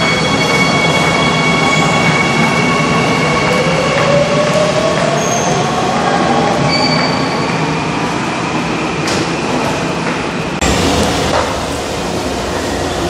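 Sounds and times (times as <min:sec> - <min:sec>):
train rumble and hiss: 0:10.6 - 0:13.0.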